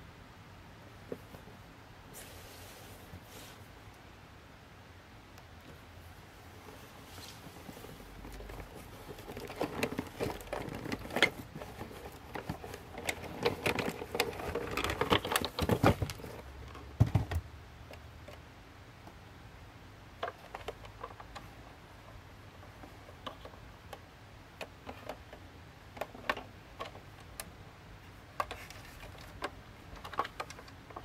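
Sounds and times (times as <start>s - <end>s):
cardboard box and packaging handled: 6.8s - 17.4s.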